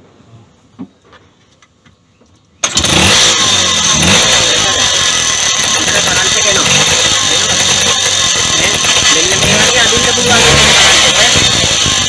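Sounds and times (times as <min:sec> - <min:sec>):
two-stroke engine running: 0:02.6 - 0:12.0.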